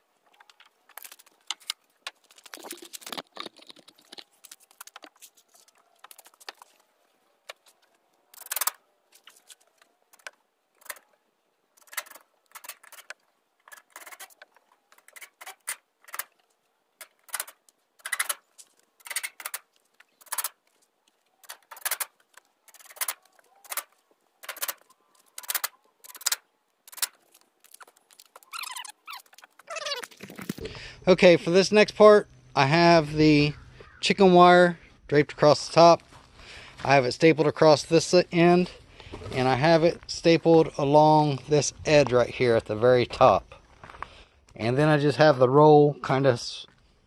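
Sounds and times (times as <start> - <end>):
wire mesh clinking and rattling: 11.8 - 16.4, 17.0 - 18.4, 19.0 - 20.6, 21.4 - 29.6.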